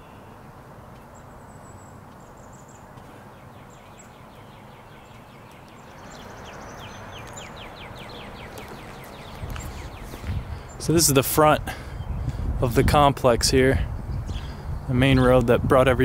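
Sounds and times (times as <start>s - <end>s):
birds chirping: 0.0s - 16.0s
low background noise: 0.0s - 16.0s
bird falling chirps: 3.7s - 10.8s.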